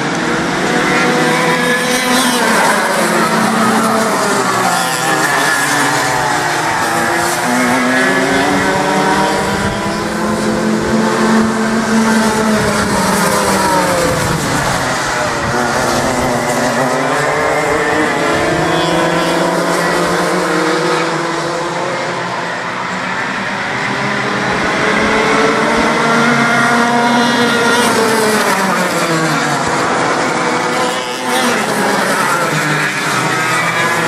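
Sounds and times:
go-kart engines racing: 0.0s - 34.0s.

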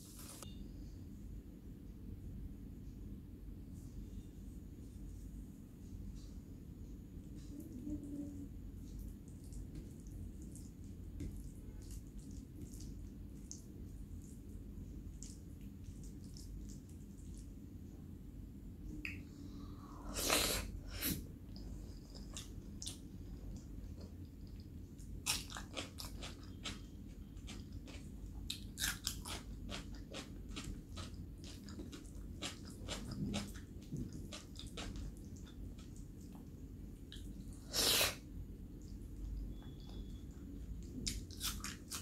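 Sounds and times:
wet chewing: 8.8s - 17.6s, 21.5s - 37.5s.

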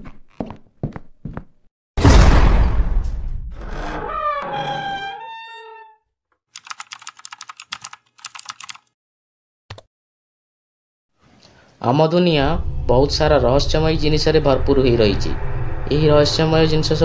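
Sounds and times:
loud boom: 2.0s - 3.6s
keyboard typing clicks: 6.6s - 8.9s.

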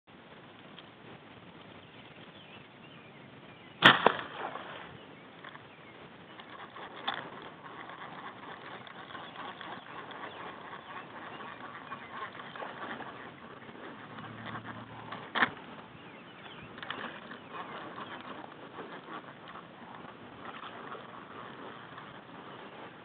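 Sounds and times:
outdoor background noise: 0.1s - 23.0s
sharp loud impact: 3.8s - 4.5s.

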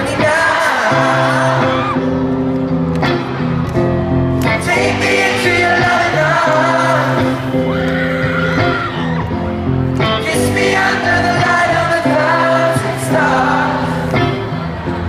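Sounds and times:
person singing: 0.0s - 2.2s, 4.4s - 9.0s, 10.0s - 15.0s
electric guitar through sound system: 0.0s - 15.0s.

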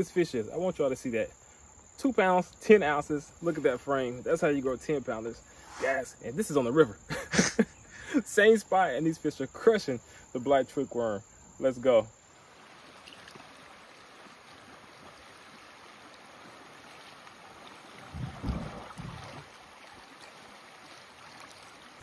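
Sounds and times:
low rumble of bumps: 18.0s - 19.5s.

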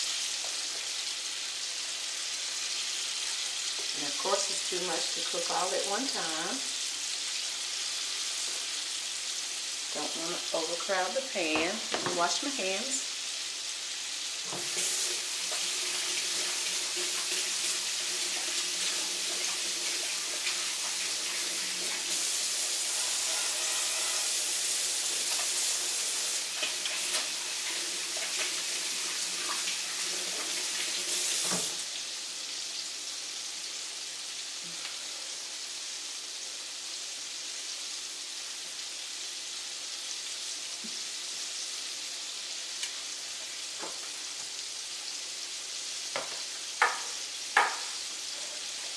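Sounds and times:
chicken frying sizzle: 0.0s - 48.9s
kitchen tap running: 14.4s - 31.8s.

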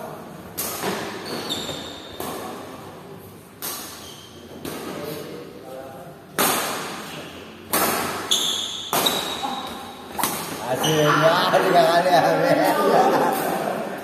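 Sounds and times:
shoes squeaking on wooden court: 0.8s - 2.5s, 3.7s - 5.0s, 8.1s - 11.2s
rackets striking shuttlecock: 7.7s - 10.6s.

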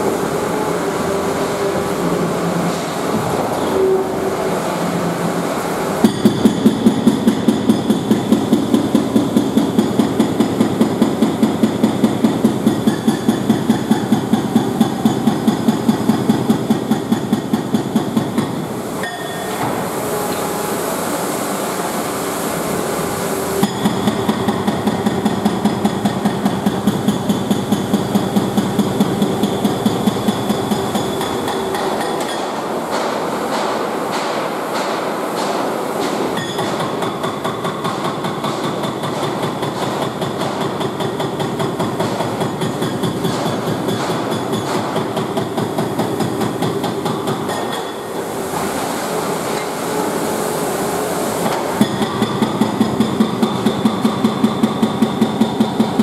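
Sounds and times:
hydraulic breaker hammering: 0.0s - 20.6s, 23.0s - 50.1s, 50.7s - 56.0s.

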